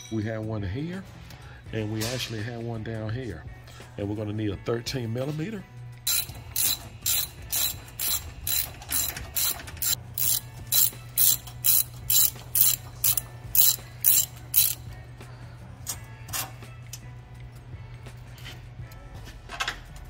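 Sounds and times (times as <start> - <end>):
ratchet clicking: 6.1 - 14.9.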